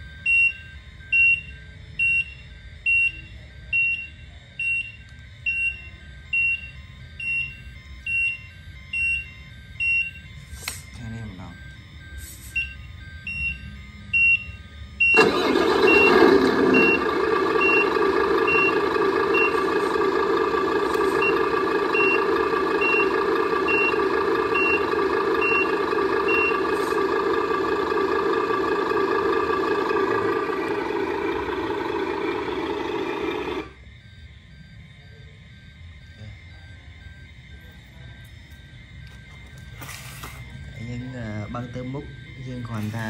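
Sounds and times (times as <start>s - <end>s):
reversing beeps: 0.0s - 43.0s
diesel truck engine from small speaker: 15.0s - 33.8s.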